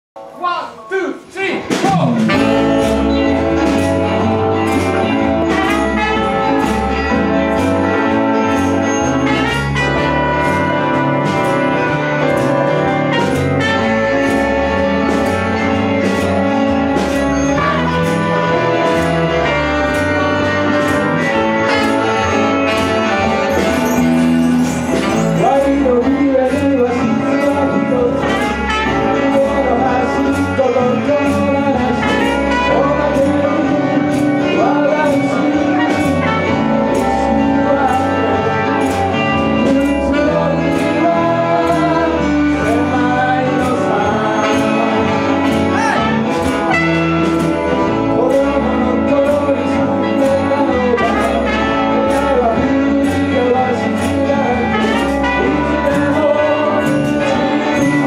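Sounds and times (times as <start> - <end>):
live band playing upbeat tune: 0.2 - 58.0.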